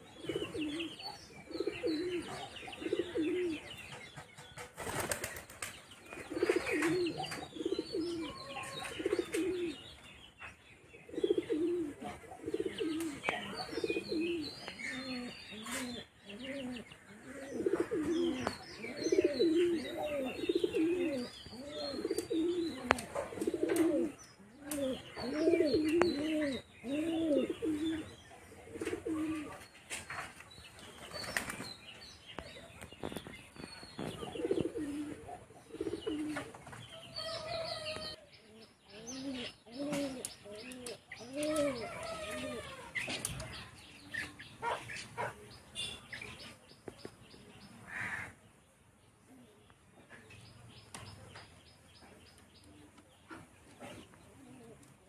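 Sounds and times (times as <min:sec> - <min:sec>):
pigeons cooing: 0:00.0 - 0:04.1, 0:06.1 - 0:10.0, 0:10.8 - 0:30.4, 0:32.4 - 0:45.9, 0:52.9 - 0:55.0
small birds chirping: 0:00.0 - 0:55.0
wings fluttering: 0:04.3 - 0:07.2, 0:29.9 - 0:31.6.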